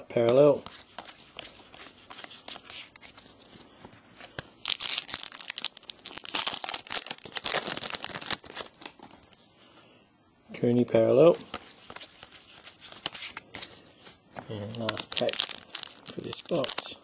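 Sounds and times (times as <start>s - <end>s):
foil wrapper tearing and crinkling: 4.6s - 9.4s, 14.7s - 17.0s.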